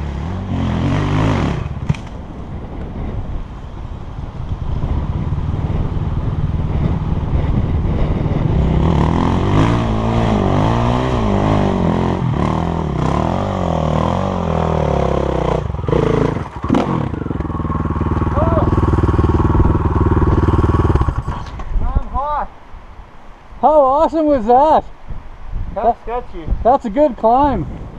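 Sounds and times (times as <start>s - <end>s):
dirt bike engine revving: 0.0s - 1.9s, 4.8s - 21.6s
motorcycle engine idling: 15.8s - 21.3s.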